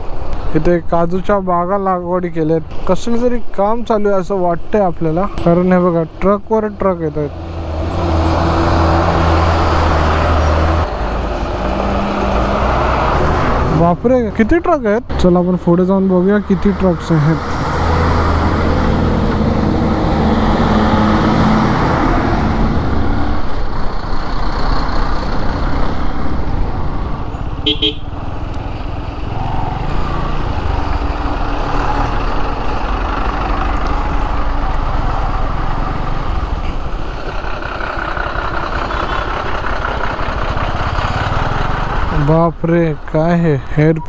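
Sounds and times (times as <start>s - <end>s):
truck engines: 0.0s - 44.0s
wind and road noise: 0.0s - 44.0s
horn toot: 27.6s - 28.2s.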